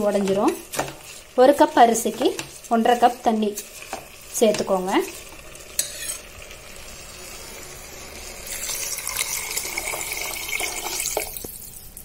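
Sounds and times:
water pouring into a pot: 6.4 - 12.0.

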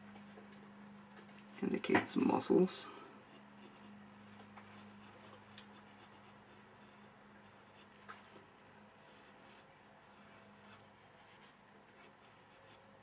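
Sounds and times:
pencil scratching on paper: 3.3 - 3.9, 4.6 - 8.1, 9.0 - 13.0.

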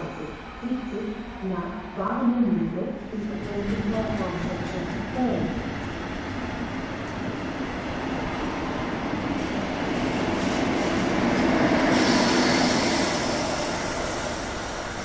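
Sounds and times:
electric train rumbling past: 0.0 - 15.0
locomotive hiss: 11.8 - 15.0.

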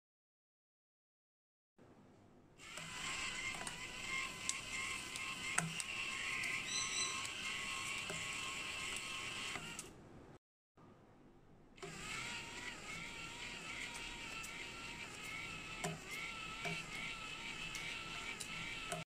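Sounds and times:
counting machine motor whine: 2.6 - 9.9, 11.8 - 19.0.

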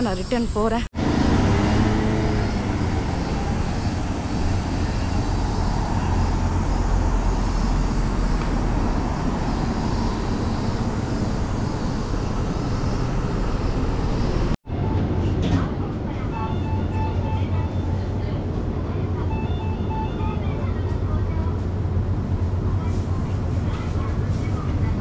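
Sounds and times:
cars and motorbikes passing: 1.0 - 14.6.

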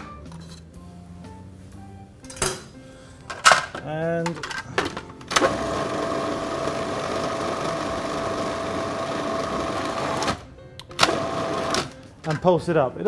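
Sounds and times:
food processor running: 5.4 - 10.4, 11.1 - 11.8.

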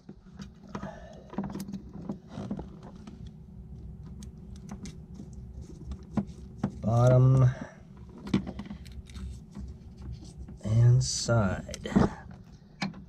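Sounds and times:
small metallic clicks and scrapes: 4.0 - 10.6.

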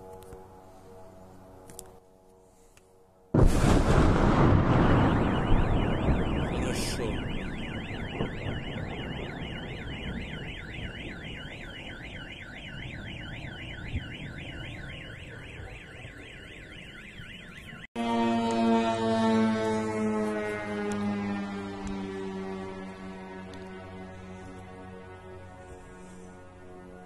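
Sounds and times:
car alarm wailing: 3.9 - 24.2.

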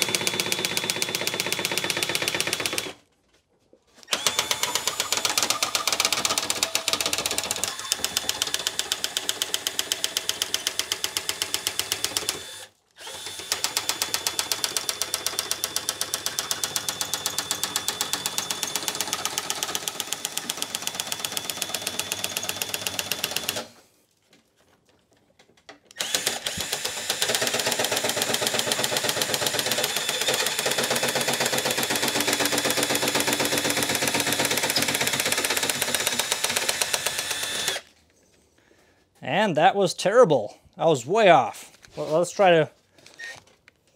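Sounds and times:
drill motor running: 0.0 - 3.0, 4.0 - 23.8, 26.0 - 37.9.

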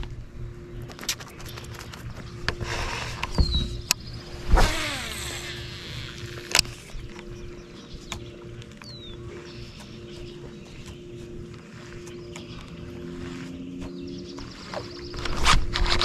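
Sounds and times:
electric motor hum: 0.0 - 16.0
fishing reel spool whirring: 0.0 - 16.0
reel and rod clicks: 3.2 - 7.4.

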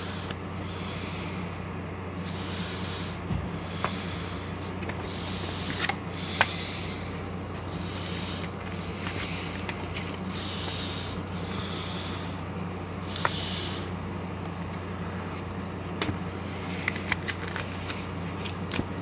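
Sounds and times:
steady low hum: 0.0 - 19.0
paper pages rustling: 4.6 - 10.8, 15.8 - 19.0.

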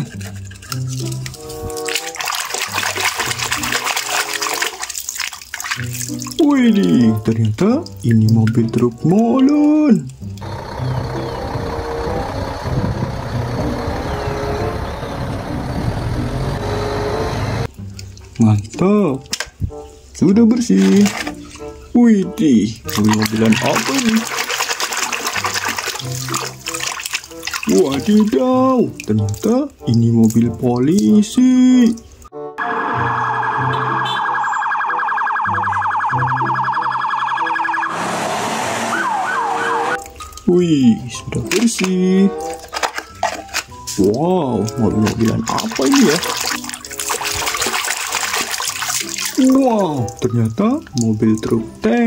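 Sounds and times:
diesel truck engine rumbling: 10.2 - 17.7, 37.8 - 40.0
police siren yelp: 10.5 - 17.7, 32.6 - 40.0.

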